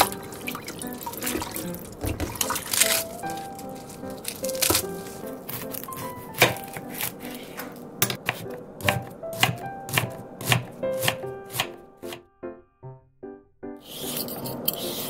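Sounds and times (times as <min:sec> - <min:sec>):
knife strikes on cutting board: 0:05.5 - 0:12.2.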